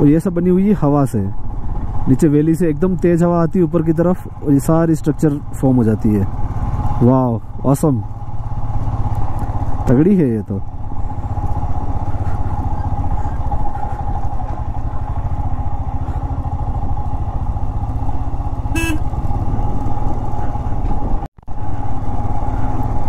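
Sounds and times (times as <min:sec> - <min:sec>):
motorcycle engine running: 0:00.0 - 0:23.0
short beep: 0:18.8 - 0:19.0.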